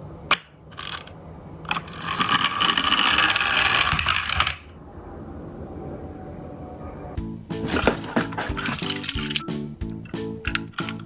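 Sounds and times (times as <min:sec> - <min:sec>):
toy gear whir and rattle: 0:00.7 - 0:01.1, 0:01.7 - 0:04.7, 0:07.6 - 0:09.4, 0:10.0 - 0:11.0
toy winding rattle: 0:00.8 - 0:01.1, 0:01.7 - 0:04.7, 0:07.7 - 0:09.4, 0:10.0 - 0:11.0.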